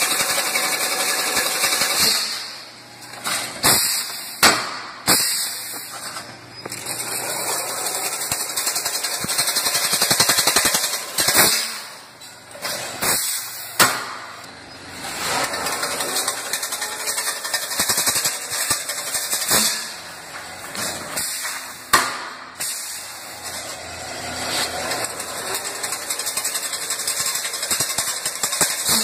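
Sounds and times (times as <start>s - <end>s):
mesh weaving machine clatter: 0.0s - 2.6s, 6.7s - 13.3s, 15.1s - 21.5s, 23.4s - 29.0s.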